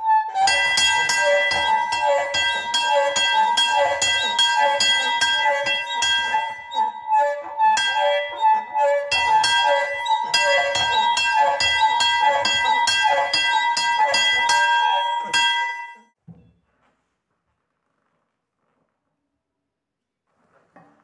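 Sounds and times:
hand bell ringing: 0:00.5 - 0:16.2.

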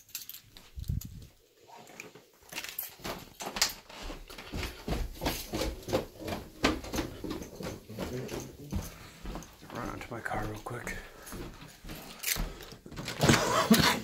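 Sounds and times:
footsteps on wooden stairs: 0:02.8 - 0:14.0.

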